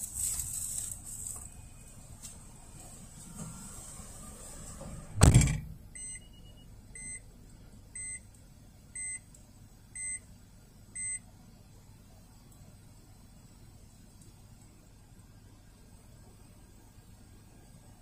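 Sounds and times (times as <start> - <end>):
loud thump: 5.2 - 5.8
electronic warning beeps: 5.9 - 7.2, 8.0 - 8.3, 9.0 - 9.3, 10.0 - 10.2, 11.0 - 11.2.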